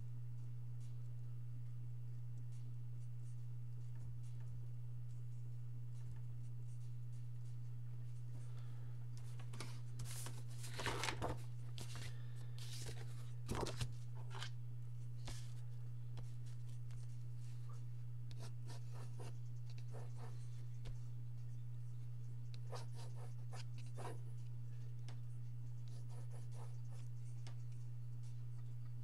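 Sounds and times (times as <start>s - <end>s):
steady low hum: 0.0s - 29.0s
paper rustling and sliding: 9.4s - 14.5s
pencil scratching on paper: 18.3s - 24.4s, 25.4s - 28.4s.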